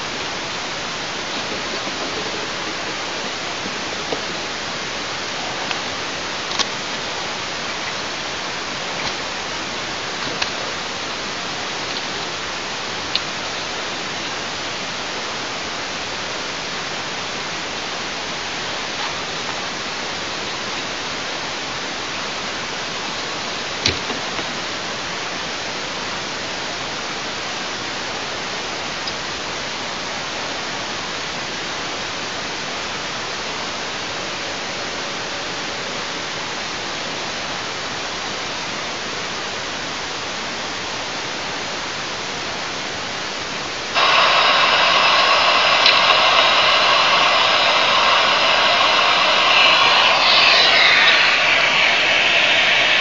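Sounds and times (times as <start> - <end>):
steady microphone hiss: 0.0 - 53.0
sharp clicks and snaps: 45.3 - 51.9.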